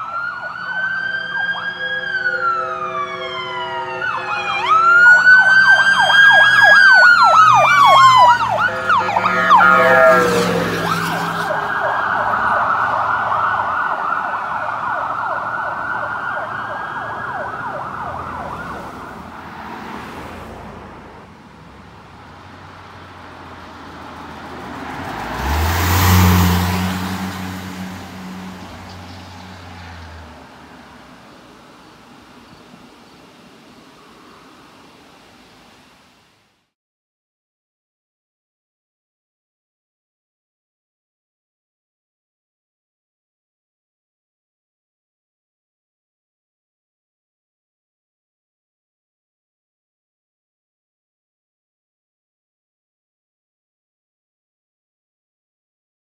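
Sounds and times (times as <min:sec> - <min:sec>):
emergency sirens wailing and yelping: 0:00.0 - 0:19.5, 0:22.5 - 0:31.2
vehicle driving past: 0:00.3 - 0:31.2.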